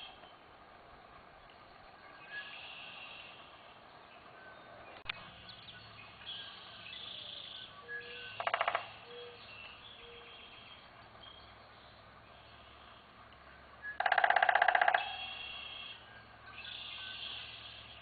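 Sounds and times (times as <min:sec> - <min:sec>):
outdoor background noise: 0:00.0 - 0:18.0
birds chirping and whistling: 0:05.4 - 0:13.0, 0:13.8 - 0:18.0
rapid rattling bird trill: 0:05.4 - 0:13.1, 0:13.7 - 0:18.0.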